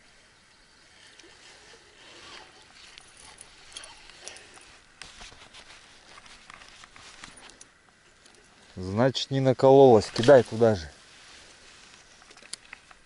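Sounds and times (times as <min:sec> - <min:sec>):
fishing reel clicking: 0:02.5 - 0:04.4.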